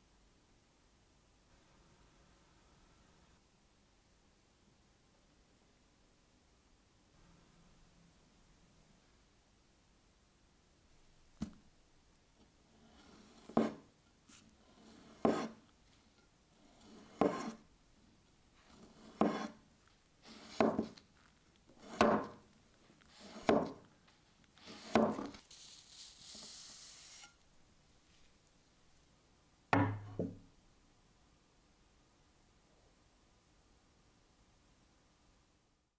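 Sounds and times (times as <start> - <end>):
soft scraping hiss: 10.7 - 29.2
knife slicing on wooden board: 12.9 - 15.6, 16.7 - 17.6, 18.7 - 19.6, 20.2 - 21.0, 21.8 - 22.4, 23.0 - 23.9, 24.6 - 25.4.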